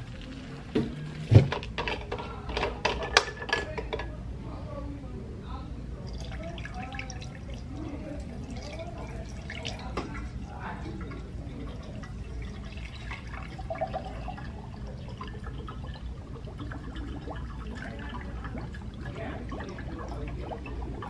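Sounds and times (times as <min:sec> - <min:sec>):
water pouring: 0:00.0 - 0:01.6, 0:06.0 - 0:21.0
water dripping: 0:06.0 - 0:21.0.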